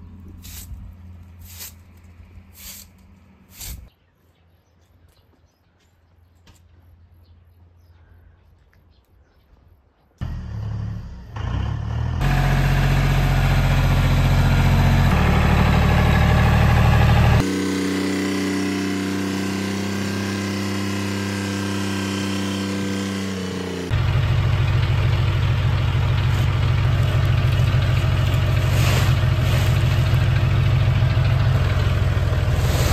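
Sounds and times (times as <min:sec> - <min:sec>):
tractor diesel engine running: 0:10.2 - 0:32.9.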